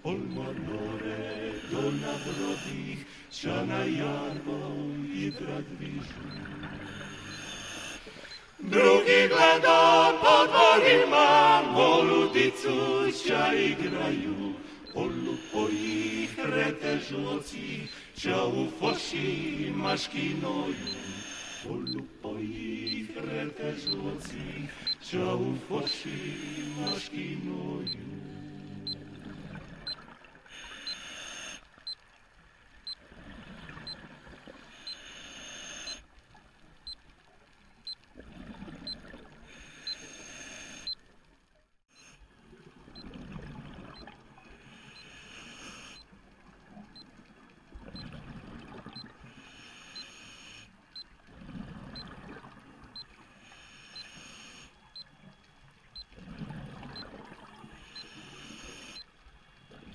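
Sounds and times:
diver breathing through regulator: 0:01.3 - 0:03.3, 0:06.7 - 0:08.6, 0:14.6 - 0:16.2, 0:20.6 - 0:21.7, 0:25.9 - 0:27.0, 0:29.3 - 0:31.7, 0:33.0 - 0:36.0, 0:39.4 - 0:41.0, 0:44.5 - 0:46.1, 0:49.2 - 0:50.8, 0:53.2 - 0:55.0, 0:57.7 - 0:59.1
exhaled bubbles hissing: 0:05.7 - 0:08.7.

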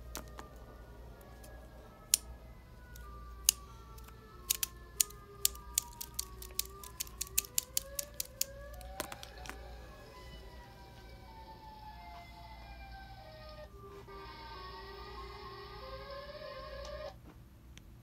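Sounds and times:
sharp plastic clicks: 0:02.9 - 0:09.6.

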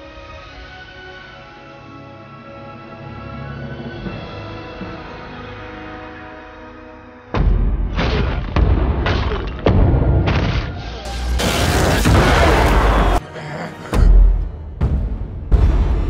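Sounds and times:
orchestral score: 0:00.0 - 0:07.6, 0:11.0 - 0:16.0.

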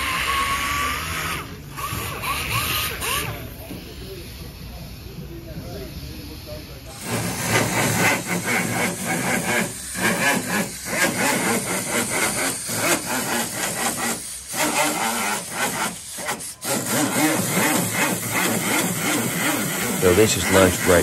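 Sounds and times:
power sander rasping on metal: 0:06.9 - 0:21.0.

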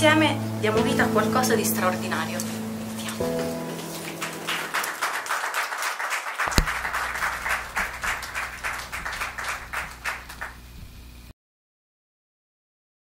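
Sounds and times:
group of people applauding: 0:04.2 - 0:10.6
sharp knock: 0:06.5 - 0:06.9.

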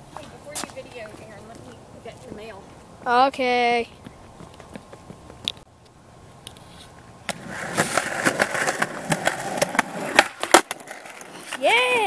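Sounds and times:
skateboard wheels rolling on concrete: 0:00.0 - 0:12.0
skateboard impacts: 0:07.2 - 0:12.0.

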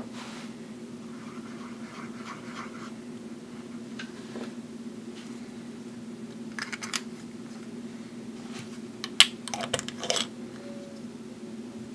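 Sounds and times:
caps clicking: 0:06.6 - 0:07.1, 0:09.0 - 0:10.3.

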